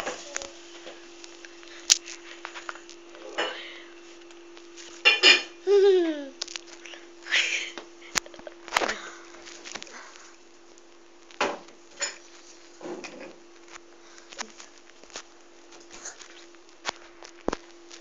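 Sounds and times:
steady low hum: 0.0 - 18.0
person making short vocal sounds: 5.7 - 6.4.

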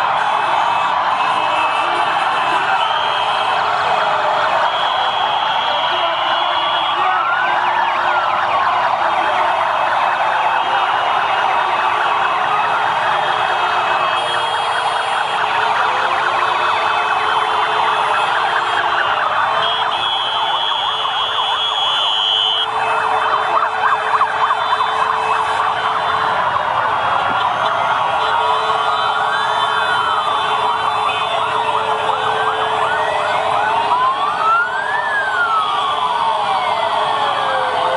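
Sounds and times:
wailing sirens: 0.0 - 37.9
motorcycle horns honking: 19.6 - 22.7.

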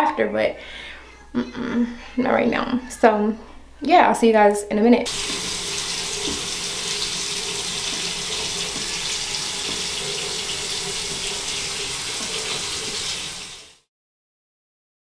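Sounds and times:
shower water spraying: 5.1 - 13.9.

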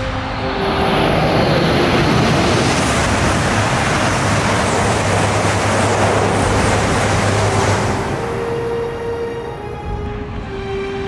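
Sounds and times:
bullet train rushing past: 0.0 - 11.0
low hum: 0.0 - 11.0.

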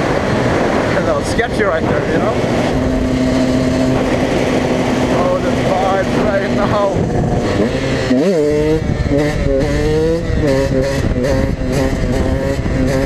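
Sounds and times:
two-stroke dirtbike engine revving: 0.0 - 13.0.

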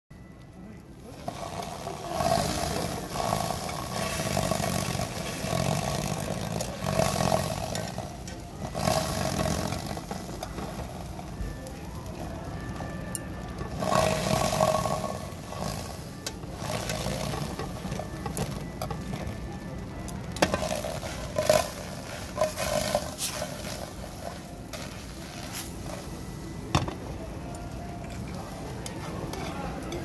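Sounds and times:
tofu buzzing against frying pan: 1.2 - 11.6.

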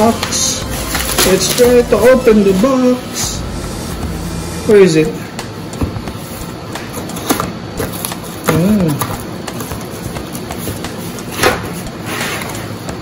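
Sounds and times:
plastic rustling: 0.0 - 2.4.

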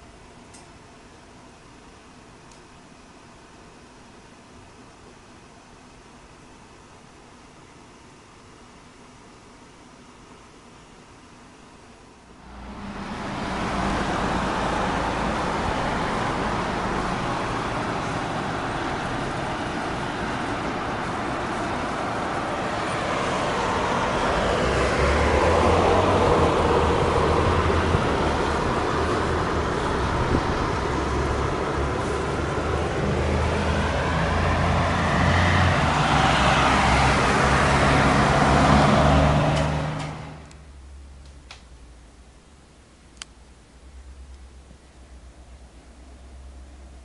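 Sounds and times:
low engine drone: 12.3 - 47.0
cars passing: 12.4 - 41.0.

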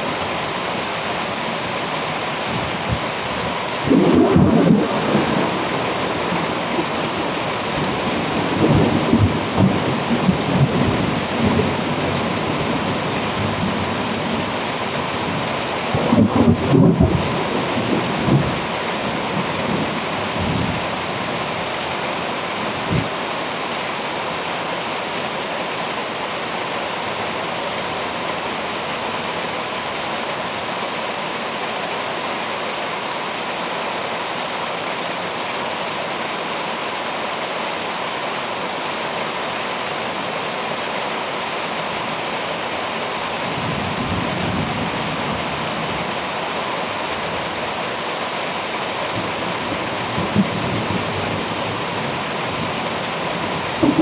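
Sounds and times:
heavy rain on leaves: 0.0 - 54.0
low rolls of thunder: 3.8 - 14.5, 15.9 - 20.9, 53.3 - 54.0.

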